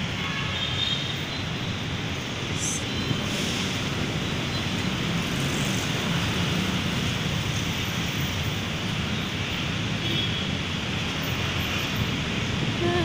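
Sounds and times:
tyres on road: 0:00.0 - 0:13.0
car and motorcycle engines: 0:02.7 - 0:13.0.

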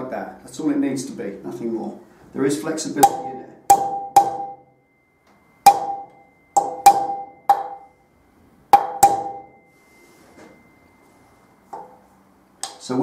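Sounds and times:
hammer tapping metal: 0:03.0 - 0:04.7, 0:05.6 - 0:08.0, 0:08.7 - 0:09.6, 0:11.7 - 0:12.0.

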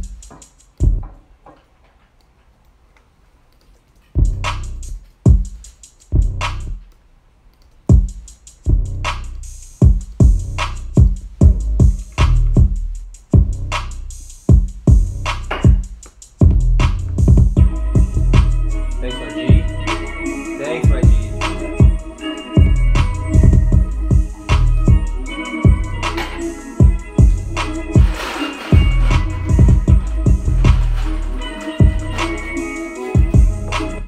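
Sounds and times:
hi-hats: 0:00.0 - 0:01.1, 0:04.1 - 0:07.0, 0:07.7 - 0:34.0
trap beat: 0:00.0 - 0:01.2, 0:04.1 - 0:06.9, 0:07.8 - 0:34.0
heavy bass hits: 0:08.7 - 0:18.8, 0:22.6 - 0:32.6, 0:33.2 - 0:34.0
synth melody: 0:17.6 - 0:34.0.

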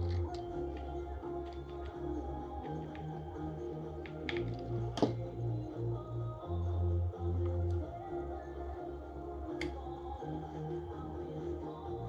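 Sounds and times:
music with held bass notes: 0:00.0 - 0:12.0.

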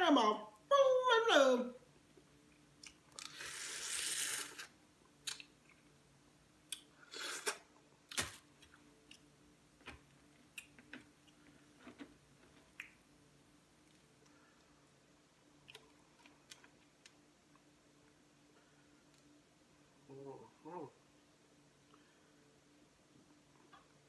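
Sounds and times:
sucking slurp: 0:03.2 - 0:04.7.

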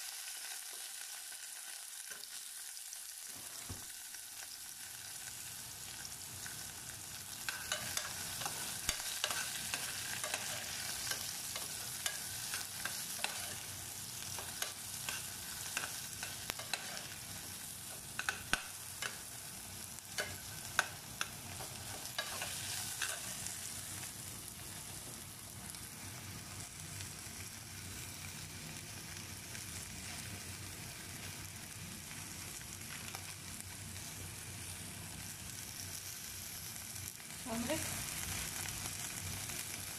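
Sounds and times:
food sizzling in oil: 0:00.0 - 0:39.9
steel spoon scraping a pot: 0:07.5 - 0:13.7.

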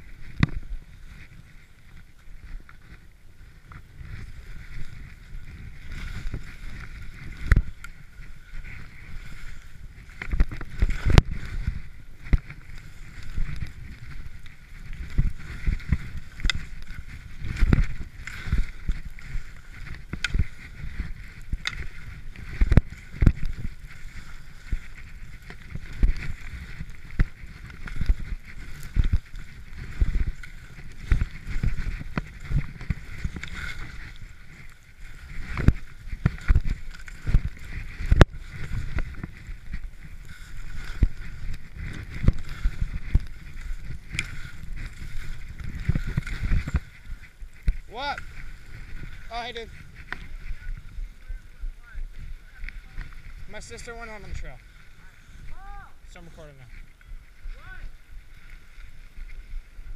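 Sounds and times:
thumps and knocks of skis: 0:00.0 - 0:51.2
skis rushing through powder: 0:00.0 - 0:59.9.

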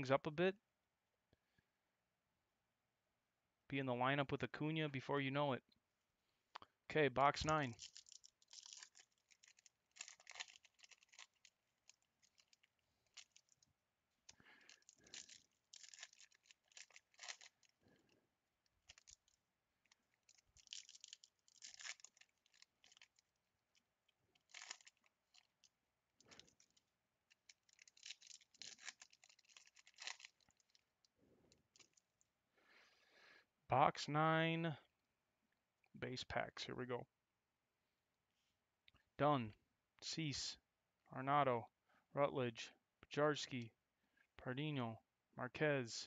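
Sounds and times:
plastic and foil crinkling: 0:07.7 - 0:32.1.

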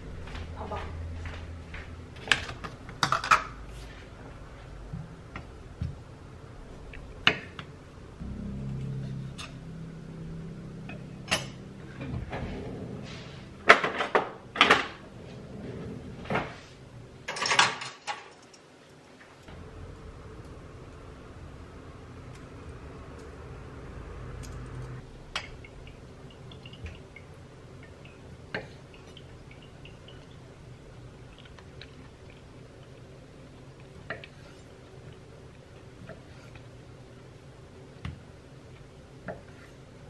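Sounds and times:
low hum: 0:05.6 - 0:13.8, 0:19.4 - 0:35.0.

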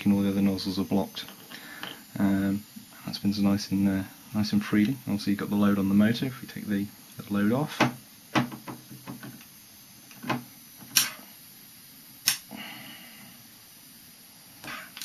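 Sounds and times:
small parts clicking and knocking: 0:01.2 - 0:02.0.

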